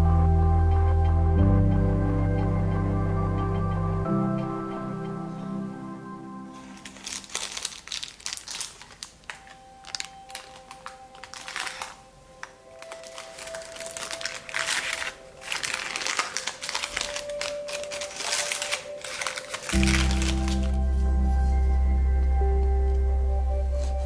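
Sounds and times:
quiet music: 0.0s - 24.0s
baking parchment crinkling: 6.5s - 20.8s.

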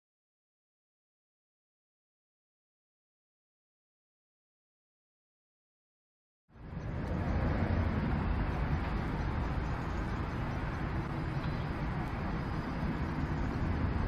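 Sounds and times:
distant road traffic: 6.5s - 14.0s.

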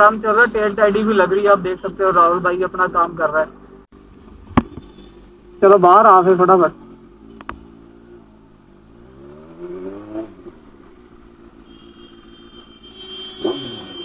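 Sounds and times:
motorcycle engine pulling away: 6.8s - 14.0s.

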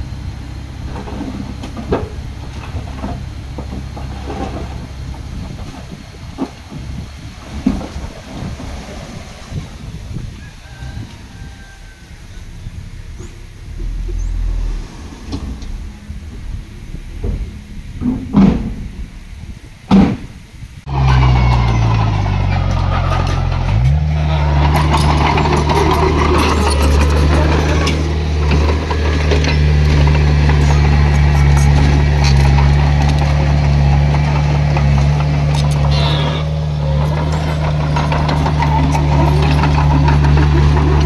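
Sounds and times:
heavy diesel engine running: 0.0s - 41.0s
quiet rumbling: 0.0s - 41.0s
loud thumps: 12.1s - 21.9s.

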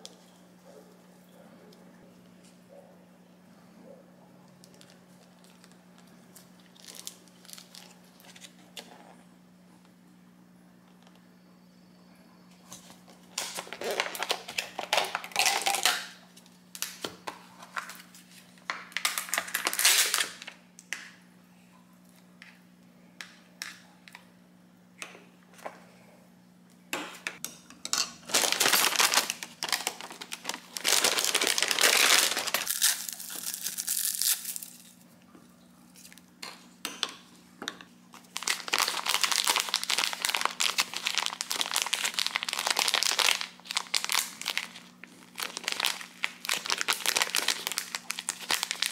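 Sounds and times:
steady low hum: 0.0s - 19.0s
plastic packaging crinkling: 4.6s - 9.2s, 12.7s - 20.6s, 28.2s - 35.0s, 38.2s - 48.9s.

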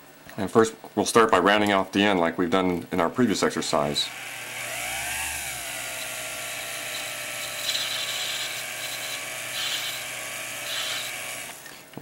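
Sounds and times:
lathe motor whine: 4.0s - 11.8s.

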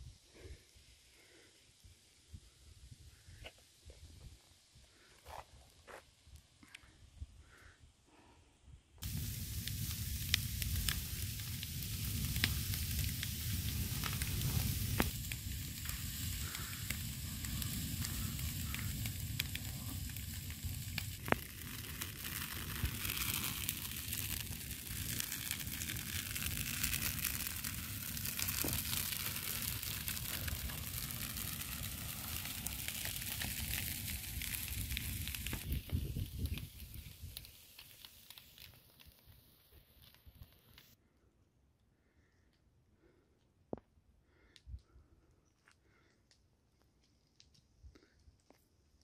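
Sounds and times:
fire low rumble: 9.0s - 40.9s
fire crackling and popping: 9.0s - 41.0s, 46.1s - 49.0s.

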